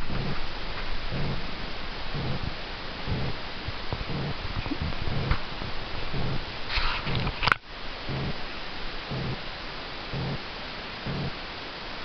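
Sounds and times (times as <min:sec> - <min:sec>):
cat purring: 0:00.0 - 0:00.4, 0:01.1 - 0:01.5, 0:02.1 - 0:07.4, 0:08.1 - 0:08.4, 0:09.1 - 0:09.5, 0:10.1 - 0:11.4
steady hiss: 0:00.0 - 0:12.0.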